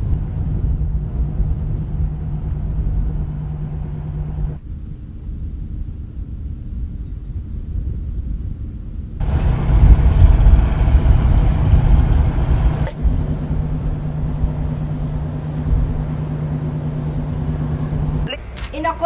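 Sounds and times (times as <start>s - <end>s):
boat engine running: 0.0s - 5.2s, 9.2s - 19.0s
wind: 0.0s - 19.0s.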